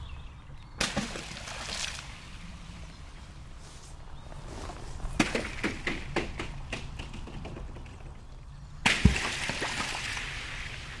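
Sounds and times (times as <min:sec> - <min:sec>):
water splashing: 0:00.8 - 0:02.4, 0:08.9 - 0:11.0.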